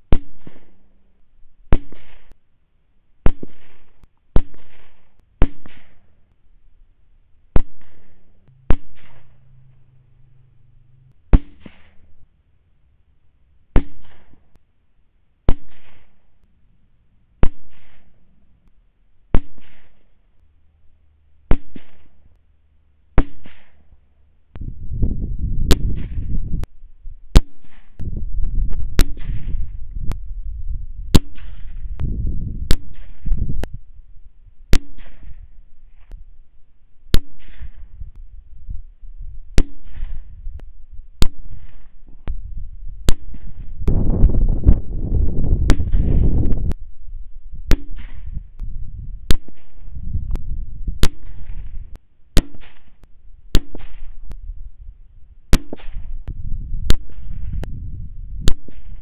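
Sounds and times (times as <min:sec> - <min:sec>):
rifle shots: 0:00.1 - 0:00.9, 0:01.7 - 0:02.4, 0:03.2 - 0:06.1, 0:07.5 - 0:09.4, 0:13.7 - 0:14.5, 0:15.5 - 0:16.2, 0:17.4 - 0:18.2, 0:19.3 - 0:20.1, 0:21.5 - 0:22.3, 0:23.2 - 0:23.9, 0:28.9 - 0:29.7, 0:31.1 - 0:32.0, 0:32.7 - 0:33.4, 0:34.7 - 0:35.5, 0:37.1 - 0:38.0, 0:39.6 - 0:40.4, 0:41.2 - 0:42.2, 0:43.0 - 0:44.0, 0:45.6 - 0:46.4, 0:47.7 - 0:48.4, 0:49.3 - 0:50.0, 0:51.0 - 0:54.3, 0:55.5 - 0:56.2, 0:56.9 - 0:57.6, 0:58.4 - 0:59.0
loud low rumble: 0:08.5 - 0:11.3.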